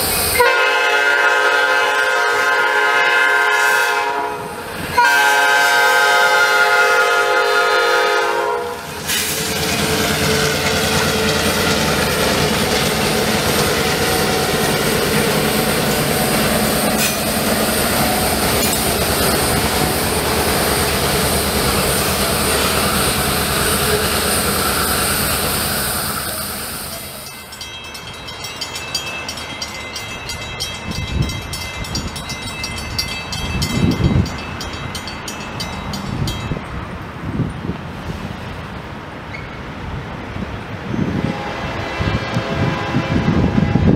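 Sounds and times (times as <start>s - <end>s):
diesel locomotives running: 0.0s - 43.9s
wind buffeting microphone: 30.2s - 38.9s, 39.7s - 43.9s.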